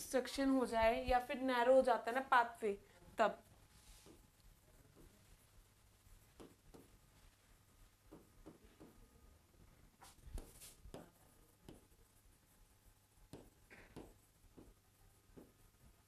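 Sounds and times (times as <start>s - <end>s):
pen tapping and stroking screen: 3.7s - 9.1s, 10.0s - 16.0s.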